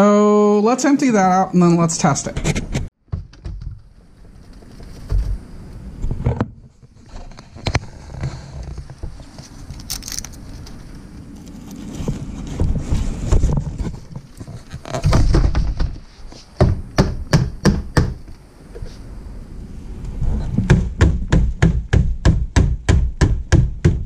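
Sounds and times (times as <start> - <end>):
fan being shaken and knocked: 12.4 - 16.0.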